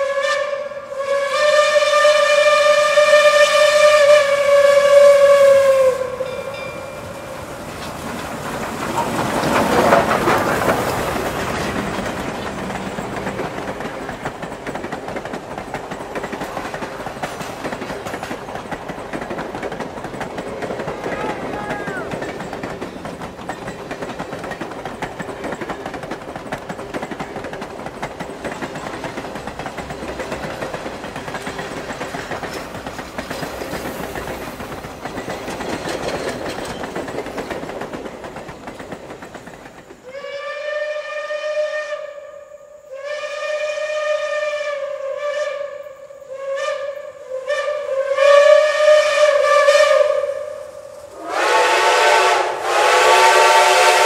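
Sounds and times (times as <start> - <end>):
steam whistle blasts: 0.0 - 6.7, 40.0 - 54.0
train cars rumbling on rails: 0.0 - 40.3, 46.1 - 54.0.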